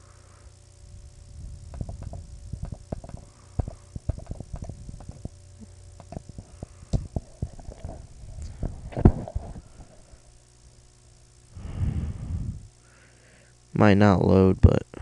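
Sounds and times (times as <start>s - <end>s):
low steady hum: 0.0s - 15.0s
mouse and keyboard clicks: 1.7s - 5.2s.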